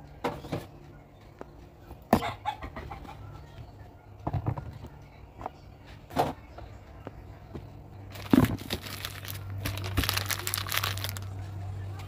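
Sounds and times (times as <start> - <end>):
steady low hum: 0.0 - 12.0
crinkling and rustling: 8.1 - 11.3.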